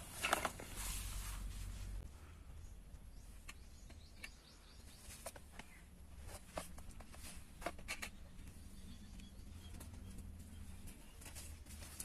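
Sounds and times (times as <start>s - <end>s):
faint rustling: 0.0s - 2.6s.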